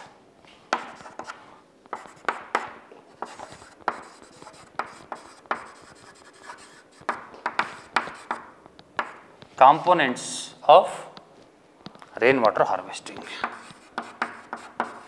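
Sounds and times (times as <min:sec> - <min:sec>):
chalk tapping and scratching on chalkboard: 0:00.7 - 0:09.2, 0:13.0 - 0:15.0.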